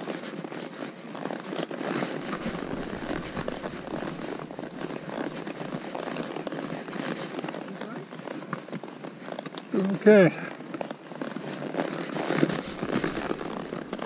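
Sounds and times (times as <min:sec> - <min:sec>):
horse hooves on stone and gravel: 0:00.0 - 0:14.0
wind rumbling on microphone: 0:02.2 - 0:08.3, 0:11.7 - 0:14.0.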